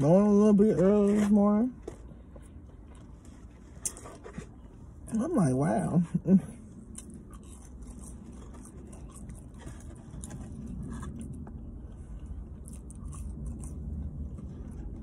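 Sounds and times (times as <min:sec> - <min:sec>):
low steady rumble: 0:00.0 - 0:15.0
chewing crunchy fried food: 0:01.8 - 0:05.2, 0:06.5 - 0:15.0.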